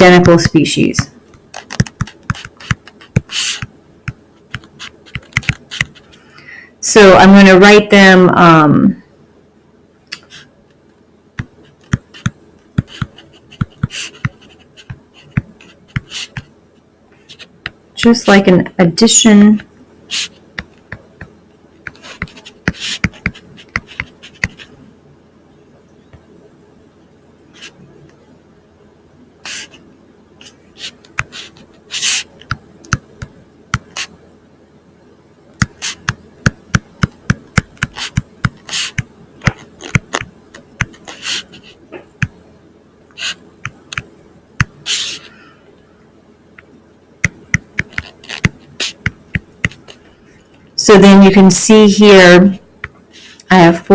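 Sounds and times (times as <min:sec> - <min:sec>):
stylus tapping on tablet screen: 0:01.4 - 0:06.0, 0:11.4 - 0:16.5, 0:21.9 - 0:24.7, 0:31.1 - 0:31.6, 0:32.4 - 0:34.1, 0:35.6 - 0:41.2, 0:47.2 - 0:50.0.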